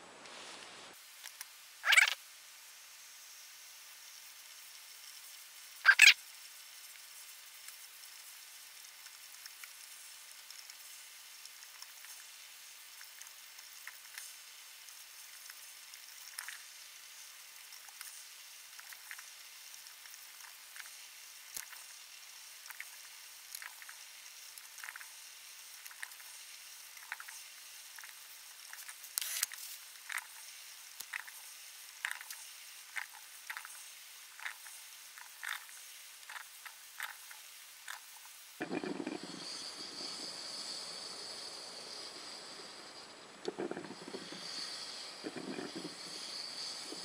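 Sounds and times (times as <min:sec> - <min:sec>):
percolator hissing and gurgling: 0:00.9 - 0:47.0
percolator perking: 0:01.8 - 0:02.2, 0:05.8 - 0:06.2.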